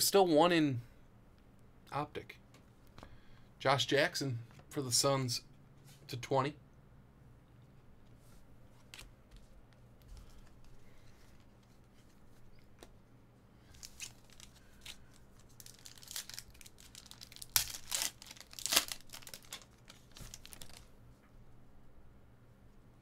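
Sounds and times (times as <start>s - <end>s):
card pack wrapper tearing: 13.7s - 20.9s.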